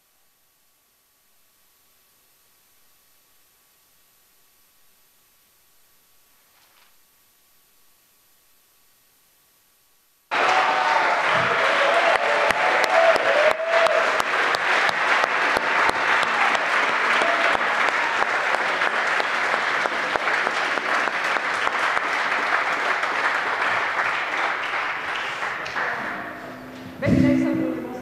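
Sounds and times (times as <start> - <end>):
audience clapping: 10.3 - 27.0.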